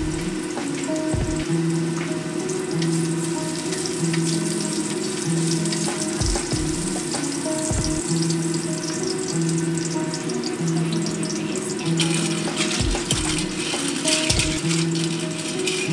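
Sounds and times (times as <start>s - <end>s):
background music: 0.0s - 15.9s
food sizzling in a wok: 0.0s - 15.9s
spatula scraping wok: 11.6s - 15.9s.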